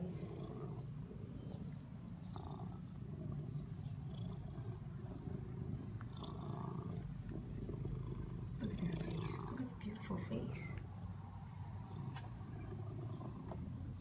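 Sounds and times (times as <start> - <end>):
cat purring: 0.0 - 14.0.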